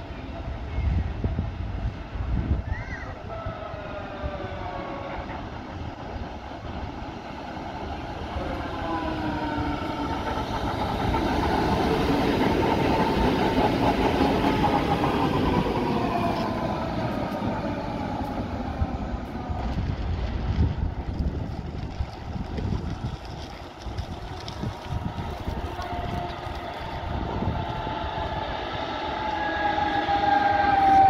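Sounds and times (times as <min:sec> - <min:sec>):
tram passing on rails: 0:00.0 - 0:31.0
tram whine falling in pitch: 0:25.6 - 0:31.0.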